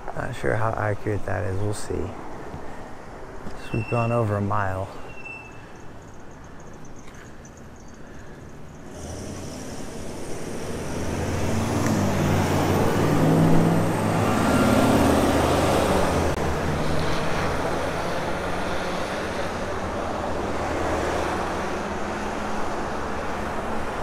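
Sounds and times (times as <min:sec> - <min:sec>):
vehicle passing on road: 0:05.0 - 0:24.0.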